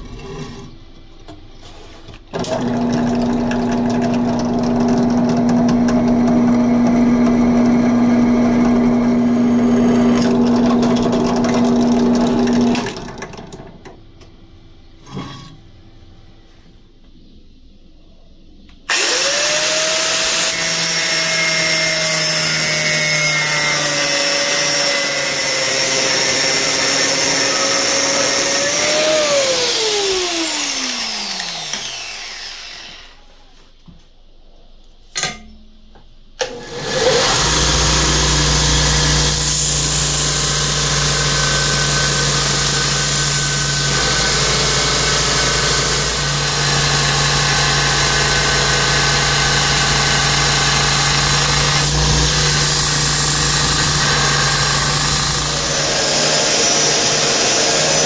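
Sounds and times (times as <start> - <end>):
angle grinder cutting steel: 18.9 - 33.2, 36.4 - 58.0
belt grinder grinding steel: 18.9 - 33.2, 36.5 - 58.0.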